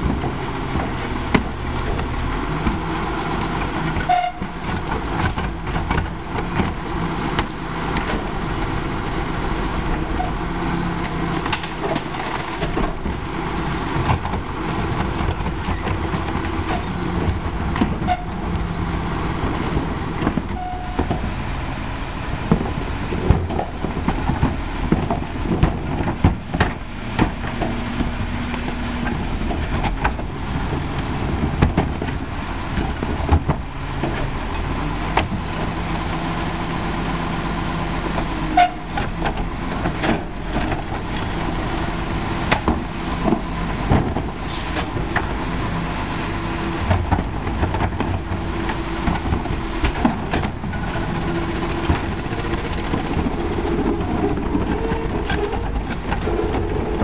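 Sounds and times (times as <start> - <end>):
diesel engine running: 0.0 - 57.0
trash carts banging against hopper: 10.0 - 21.5, 22.3 - 37.1, 37.7 - 57.0.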